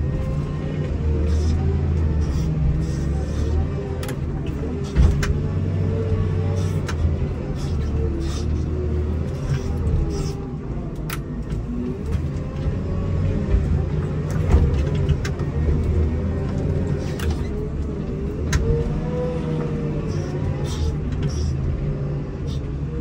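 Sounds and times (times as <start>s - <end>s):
diesel engine revving under load: 0.0s - 23.0s
sharp knocks and clunks: 4.9s - 5.4s.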